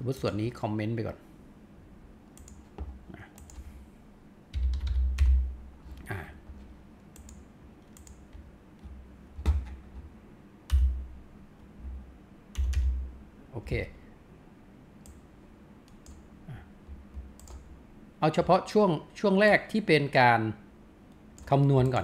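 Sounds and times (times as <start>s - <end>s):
keyboard keystrokes: 2.4s - 3.6s, 7.2s - 10.1s, 10.7s - 11.0s, 16.9s - 17.7s.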